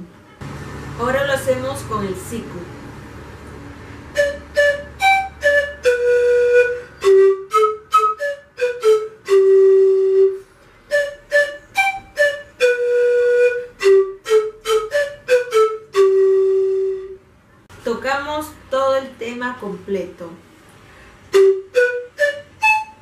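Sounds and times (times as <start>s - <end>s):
panpipes playing a melody: 4.2s - 17.2s, 21.4s - 23.0s.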